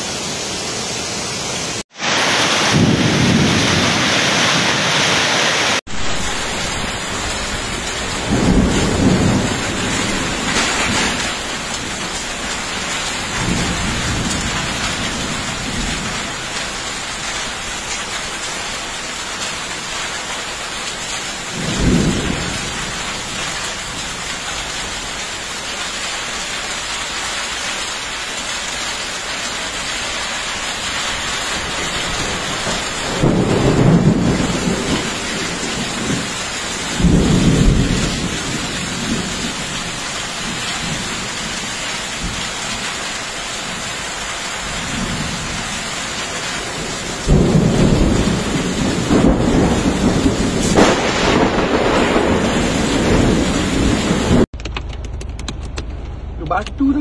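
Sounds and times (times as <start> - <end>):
heavy rain pouring: 0.0 - 55.0
deep thunder rumbling: 2.0 - 4.9, 5.9 - 17.0, 21.3 - 25.1, 31.1 - 42.9, 44.6 - 54.5.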